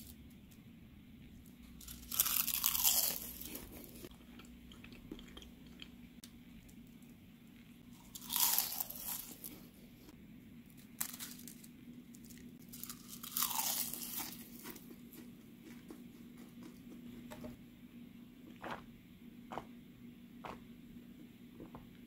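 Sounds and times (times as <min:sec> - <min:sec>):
chips crunching when bitten: 0:01.8 - 0:06.0, 0:07.9 - 0:09.6, 0:10.8 - 0:16.9.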